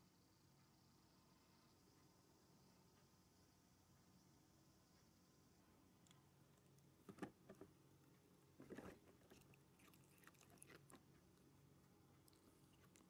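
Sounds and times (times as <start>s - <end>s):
cat chewing cardboard: 8.5s - 11.6s, 12.2s - 13.0s.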